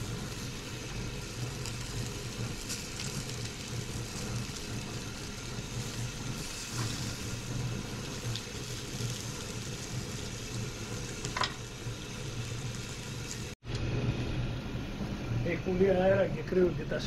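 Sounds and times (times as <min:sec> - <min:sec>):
fish sizzling on a grill: 0:00.0 - 0:13.6.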